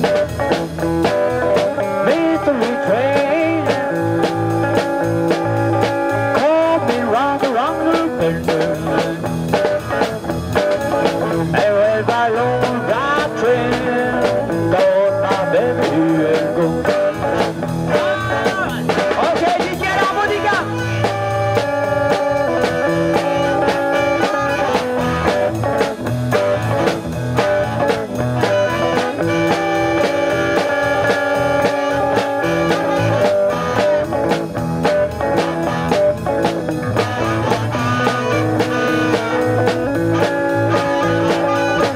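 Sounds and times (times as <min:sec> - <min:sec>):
blues band playing: 0:00.0 - 0:41.9
amplified harmonica: 0:20.7 - 0:25.8, 0:27.7 - 0:34.2, 0:36.8 - 0:41.9.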